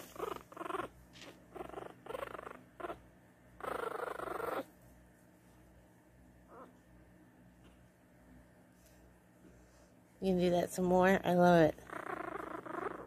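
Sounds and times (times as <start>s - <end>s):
puppy growling: 0.0s - 4.7s, 6.5s - 6.8s, 11.7s - 13.0s.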